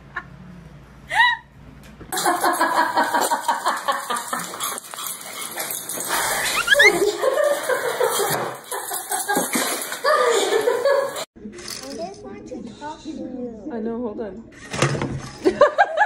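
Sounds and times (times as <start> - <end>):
rising squeaks: 6.3 - 7.1
small dogs yapping: 6.4 - 7.0.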